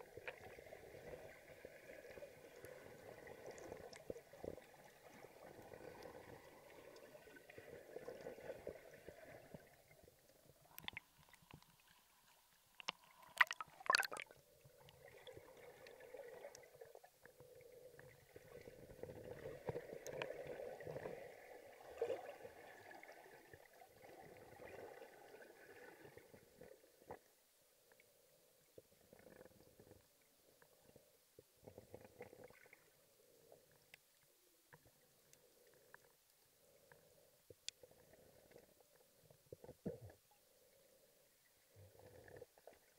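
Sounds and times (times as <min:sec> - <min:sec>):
underwater rumbling and gurgling: 0:12.8 - 0:27.2, 0:28.8 - 0:33.9.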